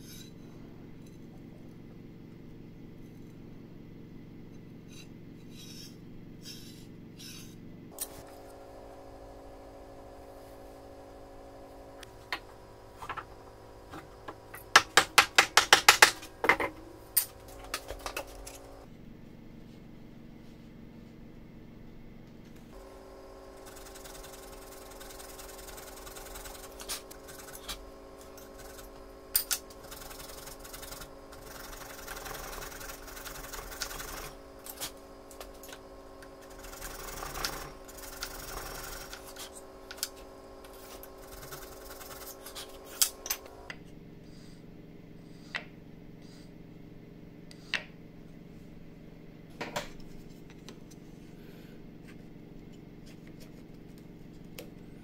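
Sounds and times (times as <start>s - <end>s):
chisel paring wood: 14.0s - 16.7s
handsaw cutting wood: 22.8s - 43.1s.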